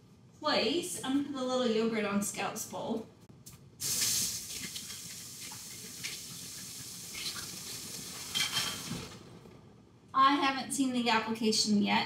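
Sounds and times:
tap water running into sink: 3.8 - 9.1.

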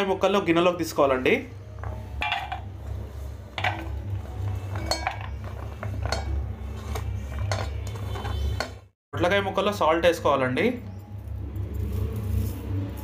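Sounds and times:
plate clinking against steel: 1.8 - 2.7, 3.6 - 8.8.

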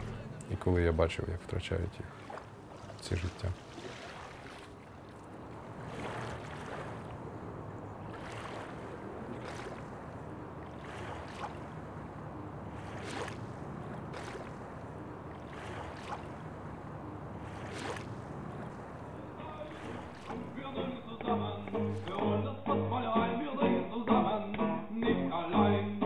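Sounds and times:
water lapping in small waves: 0.0 - 22.2
soft water splash: 1.4 - 22.2.

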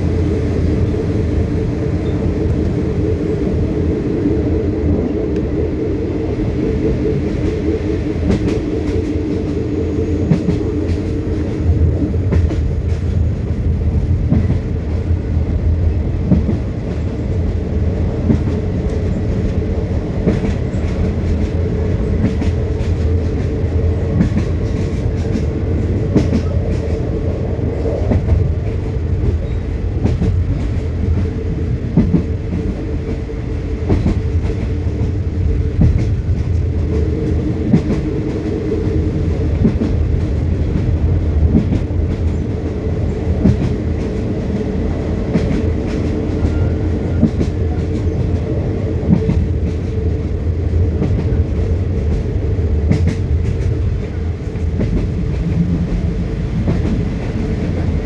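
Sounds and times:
train rumbling: 0.0 - 58.0
train wheels clicking on rails: 0.0 - 58.0.

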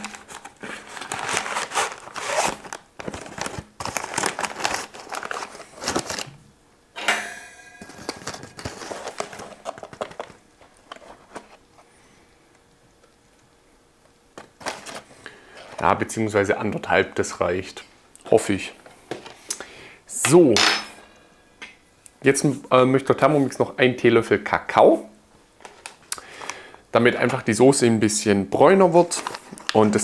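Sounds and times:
paper packet tearing and crinkling: 0.0 - 6.3, 8.0 - 10.4, 29.0 - 30.0
faint handling sounds: 7.8 - 13.5, 28.6 - 30.0.

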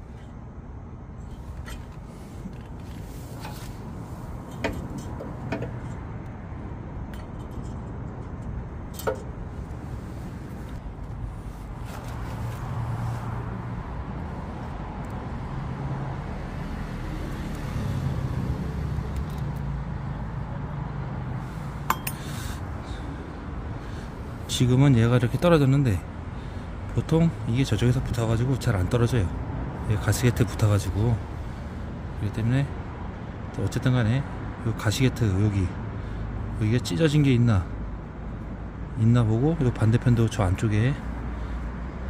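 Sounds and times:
metal clicks and clinks: 21.9 - 22.2.

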